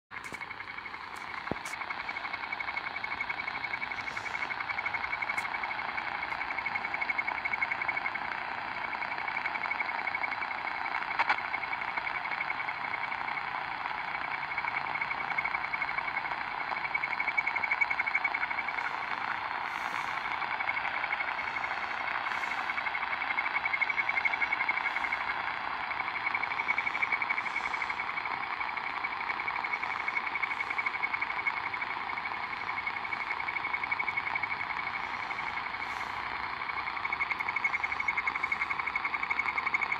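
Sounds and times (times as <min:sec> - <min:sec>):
radio jamming signal hiss: 0:00.2 - 0:39.9.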